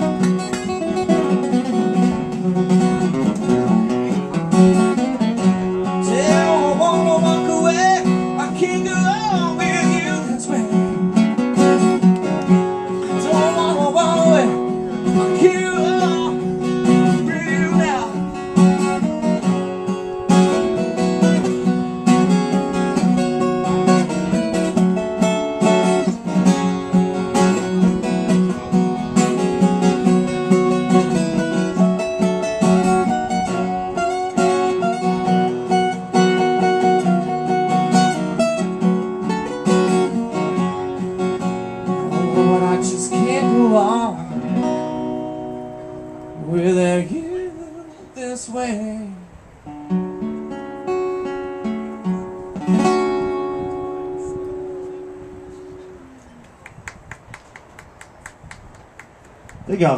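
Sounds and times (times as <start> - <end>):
acoustic guitar strumming: 0.0 - 59.9
man singing: 5.9 - 10.9, 13.0 - 18.4, 42.1 - 44.4, 46.4 - 49.3.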